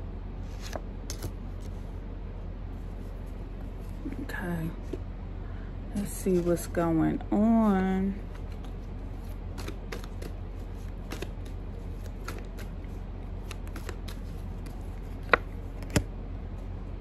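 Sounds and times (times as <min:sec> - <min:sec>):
steady low hum: 0:00.0 - 0:17.0
playing cards shuffling: 0:00.5 - 0:01.8, 0:08.2 - 0:16.0.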